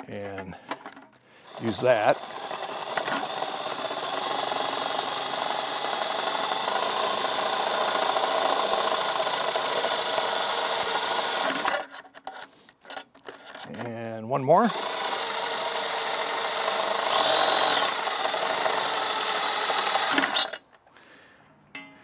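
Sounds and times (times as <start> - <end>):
cordless drill cutting sheet metal: 1.4 - 12.5, 14.6 - 20.6.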